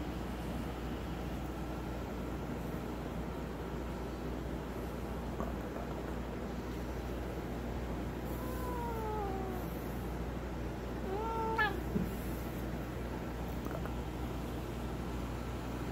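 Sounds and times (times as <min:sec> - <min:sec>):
cat meowing: 0:08.3 - 0:09.8, 0:11.0 - 0:11.9.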